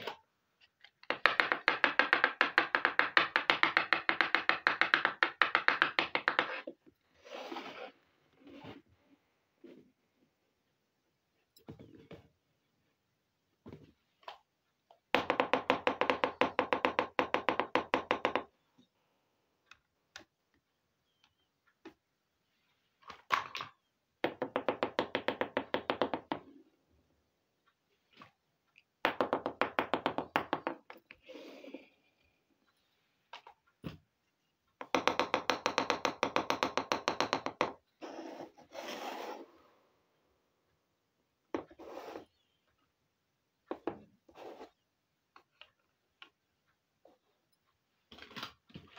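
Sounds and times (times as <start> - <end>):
plastic toy pieces tapping: 0.9 - 6.6
plastic pot scraping tabletop: 38.0 - 39.5.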